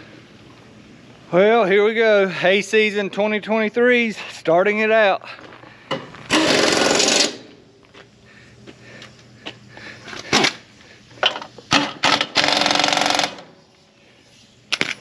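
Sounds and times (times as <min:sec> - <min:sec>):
power tool running: 0:06.3 - 0:07.6, 0:11.7 - 0:13.6.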